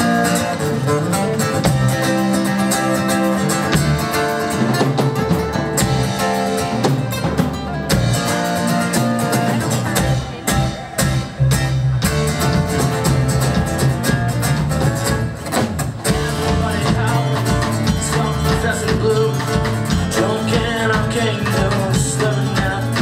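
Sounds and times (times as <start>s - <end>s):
acoustic guitar: 0.0s - 23.0s
drum kit steady beat: 0.0s - 23.0s
electric bass: 0.0s - 23.0s
man singing into a microphone: 16.1s - 23.0s.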